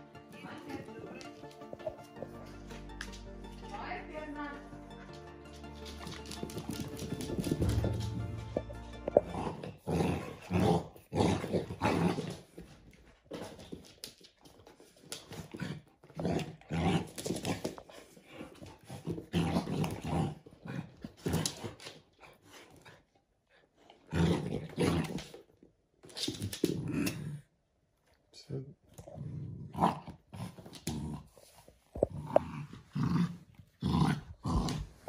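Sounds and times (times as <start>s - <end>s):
dogs play-growling: 5.9s - 27.5s, 28.9s - 35.0s.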